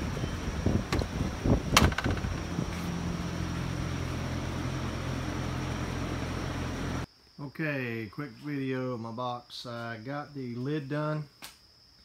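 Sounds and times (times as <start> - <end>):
low hum: 0.0 - 7.1.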